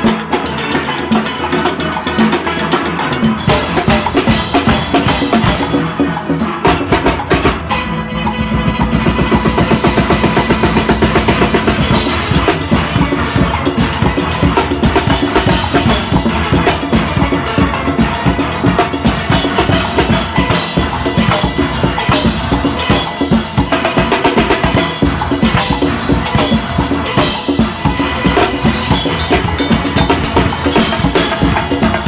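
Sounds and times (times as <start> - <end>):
drum kit groove: 0.0 - 32.0
steel pans playing: 0.0 - 32.0.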